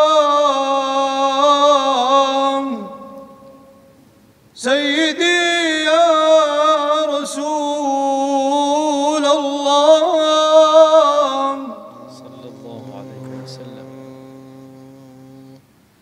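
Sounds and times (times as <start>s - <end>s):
man singing unaccompanied: 0.0s - 3.8s, 4.6s - 15.8s
faint low hum: 7.5s - 16.0s.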